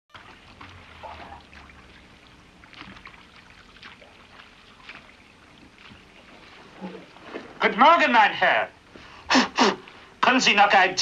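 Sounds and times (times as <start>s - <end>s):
small splashes and drips: 0.1s - 7.3s
bath water sloshing: 0.1s - 8.1s.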